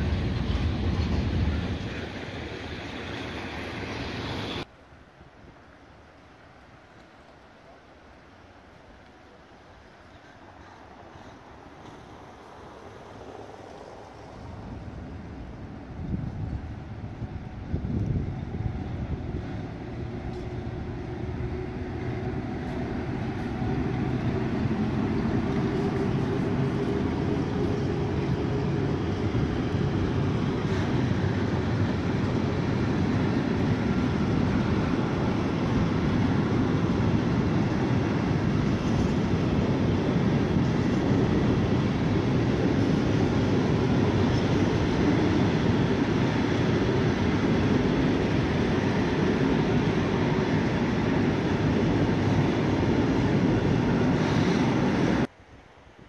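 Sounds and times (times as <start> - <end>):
steel wheels rumbling on rails: 0.0 - 4.7, 9.8 - 55.3
freight train passing: 0.0 - 56.0.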